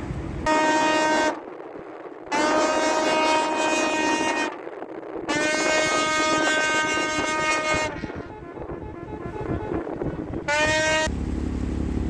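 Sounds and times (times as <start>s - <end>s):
tugboat horn blasts: 0.4s - 1.4s, 2.3s - 4.6s, 5.3s - 11.2s.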